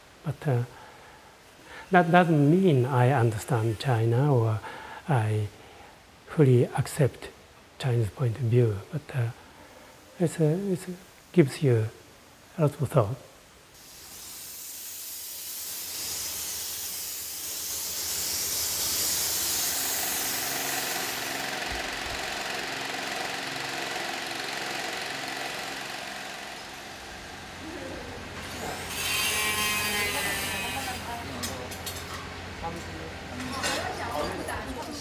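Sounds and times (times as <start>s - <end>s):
hose hissing on tile: 13.8s - 21.5s.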